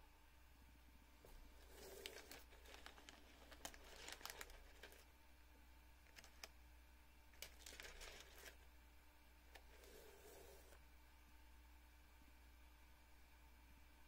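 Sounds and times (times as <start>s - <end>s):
low steady hum: 0.0s - 14.0s
rustling of cord: 1.2s - 5.1s, 7.4s - 8.6s.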